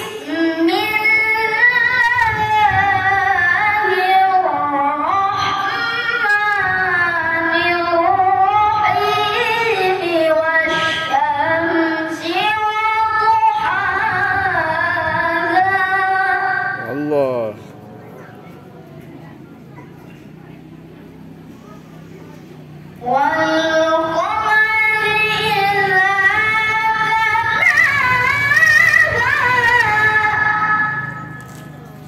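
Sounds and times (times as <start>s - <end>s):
boy chanting into a microphone: 0.0s - 17.5s, 23.0s - 31.2s.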